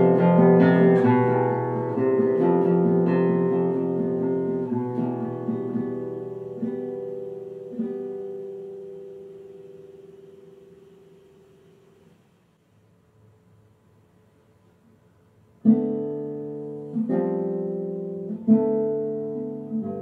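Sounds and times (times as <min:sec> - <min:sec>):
classical guitar fingerstyle: 0:00.0 - 0:12.2, 0:14.8 - 0:20.0.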